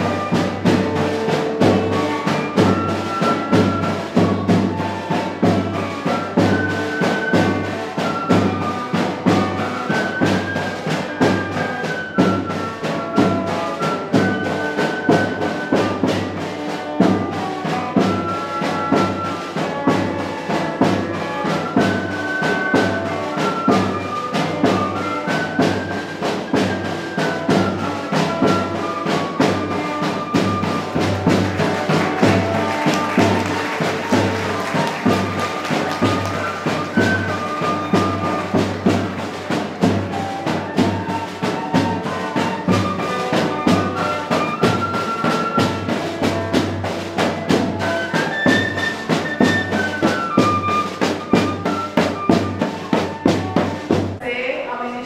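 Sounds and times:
brass melody: 0.0 - 55.0
steady drumbeat: 0.0 - 55.0.

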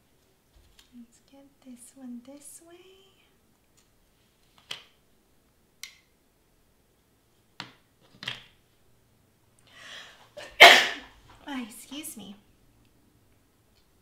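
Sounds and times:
person sneezing: 10.4 - 11.1.

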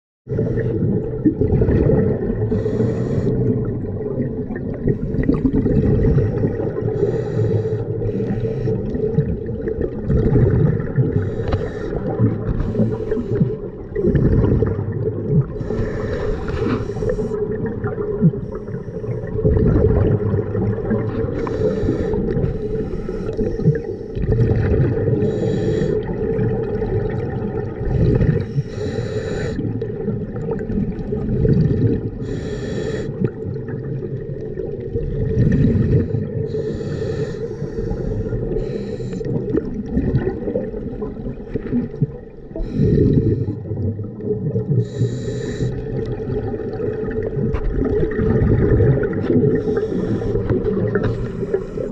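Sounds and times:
exhaled bubbles underwater: 0.3 - 51.9
diver breathing through regulator: 2.5 - 3.5, 6.8 - 9.0, 11.1 - 13.8, 15.6 - 17.6, 21.1 - 24.2, 25.0 - 26.3, 27.8 - 29.8, 32.1 - 33.4, 35.4 - 39.6, 42.5 - 43.7, 44.8 - 46.0, 49.4 - 51.9.

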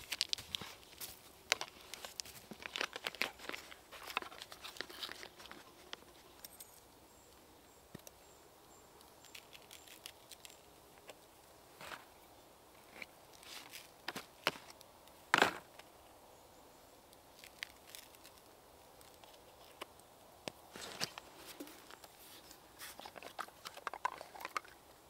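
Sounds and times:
dry material crinkling: 0.0 - 6.3, 9.1 - 11.1, 17.4 - 20.0
rustling: 0.0 - 6.9, 12.8 - 15.9, 20.6 - 24.8.

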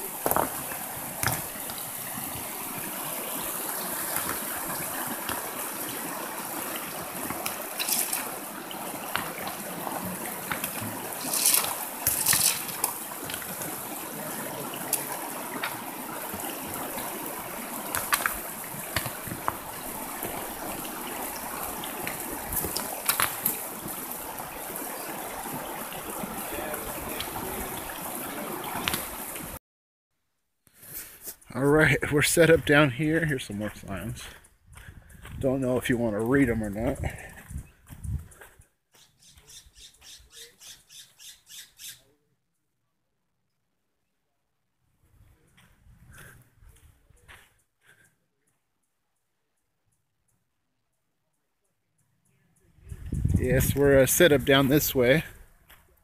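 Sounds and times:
river running over stones: 0.0 - 29.6, 53.4 - 55.3
water splashes and rock clacks: 0.0 - 29.6, 31.9 - 37.6.

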